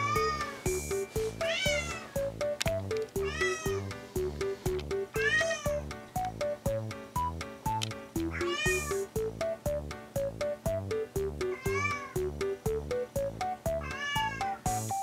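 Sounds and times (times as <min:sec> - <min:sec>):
light melodic background music: 0:00.0 - 0:15.0
kitten meowing: 0:01.4 - 0:02.2, 0:03.2 - 0:03.9, 0:05.2 - 0:05.8, 0:08.3 - 0:09.0, 0:11.5 - 0:12.2, 0:13.8 - 0:14.6.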